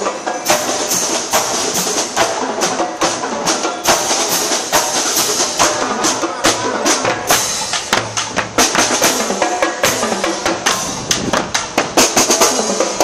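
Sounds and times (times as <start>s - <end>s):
marching band melody: 0.0s - 13.0s
snare and bass drums: 0.0s - 13.0s.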